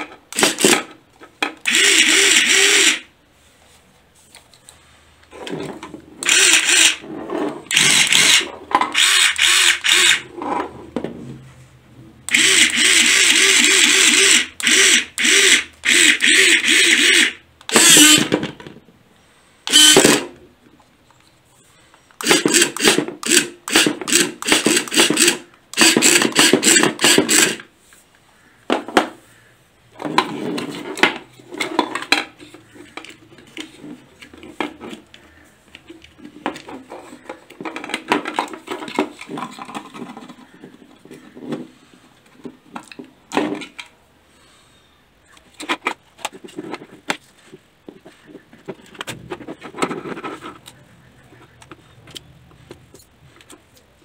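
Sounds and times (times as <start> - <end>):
toy car motors whirring: 1.6 - 3.1, 6.2 - 7.0, 7.7 - 10.3, 12.3 - 18.3, 19.7 - 20.3, 22.2 - 27.7
plastic parts clicking and rattling: 30.0 - 44.0, 45.3 - 47.3, 47.9 - 53.9.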